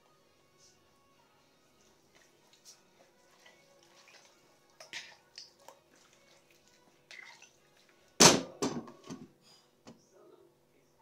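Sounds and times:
wet squelches of mixing meat: 1.6s - 8.2s.

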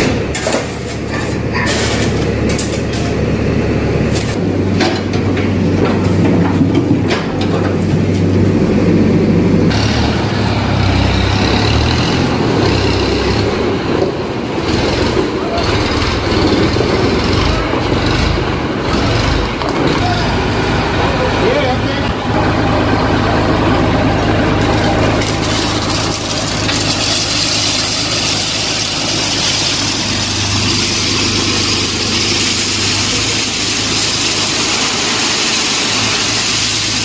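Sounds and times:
hand tools scraping rubble: 0.0s - 3.2s, 24.1s - 37.0s
engine rumble: 0.0s - 37.0s
tractor engine running: 0.0s - 37.0s.

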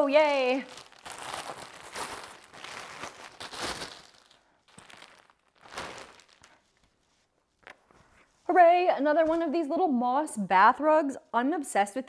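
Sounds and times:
plastic packaging crinkling: 0.0s - 7.9s.

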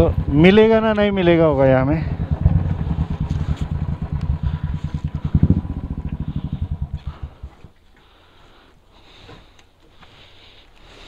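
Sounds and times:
motorcycle engine idling: 0.0s - 8.7s.

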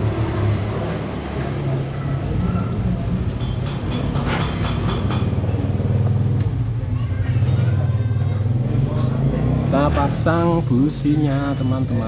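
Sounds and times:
engine running: 0.0s - 6.9s.

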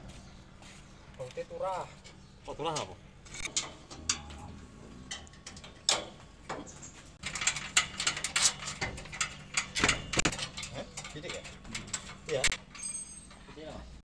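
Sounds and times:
metal clicks and knocks of bolts: 2.7s - 13.7s.

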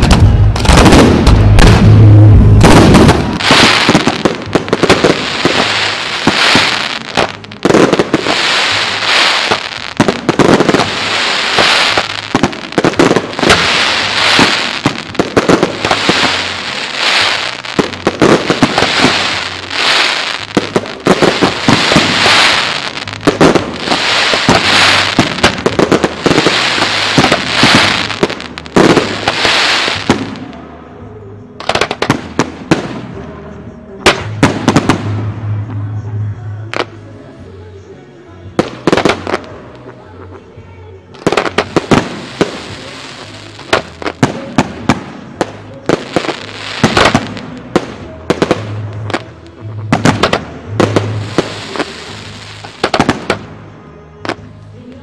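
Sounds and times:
heavy firework boom: 0.0s - 6.6s
fireworks crackling and popping: 0.0s - 30.7s, 31.6s - 33.3s, 34.0s - 35.6s, 38.6s - 55.0s.

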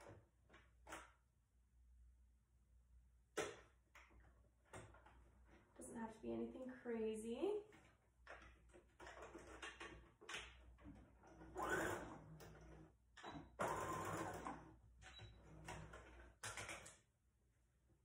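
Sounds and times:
sewing machine stitching: 11.0s - 16.7s.

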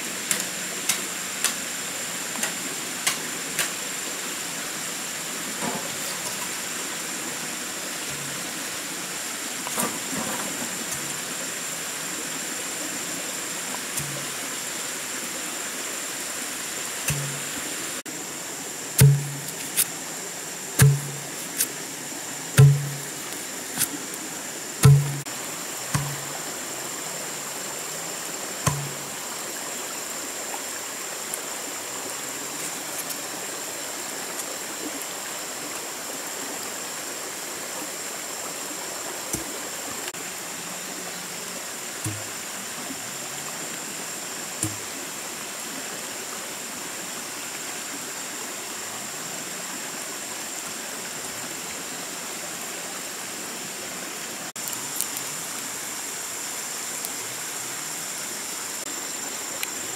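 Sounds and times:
steady rushing hiss: 0.0s - 59.9s
bamboo pole thumping ground: 14.0s - 14.4s, 17.1s - 17.6s, 19.0s - 19.9s, 20.8s - 21.7s, 22.6s - 24.0s, 24.8s - 25.3s, 25.9s - 26.4s, 28.6s - 29.1s, 42.1s - 42.3s, 44.6s - 44.9s.

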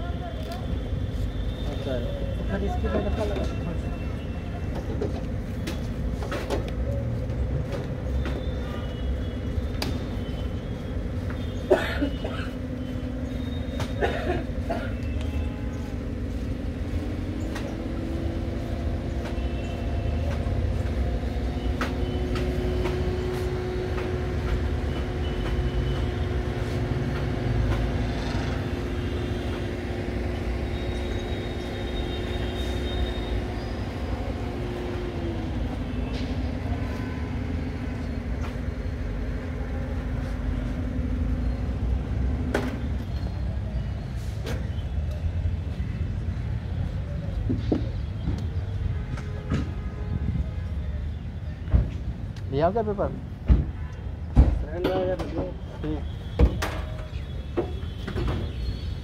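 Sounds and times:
engine droning hum: 0.8s - 47.4s.

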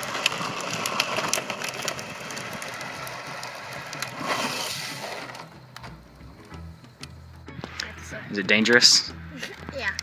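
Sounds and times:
wheels skidding on asphalt: 0.0s - 5.8s.

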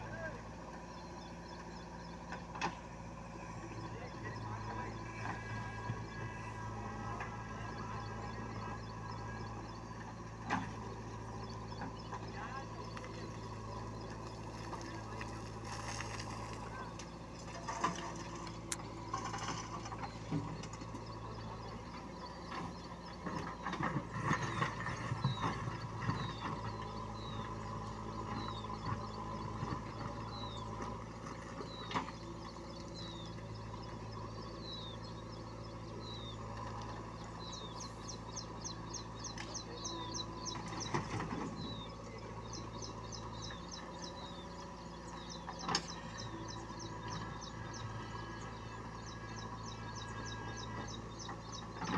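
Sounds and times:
bird chirping: 0.0s - 51.9s
diesel engine running: 0.0s - 51.9s
backhoe scraping soil: 12.1s - 21.6s, 22.4s - 34.3s.

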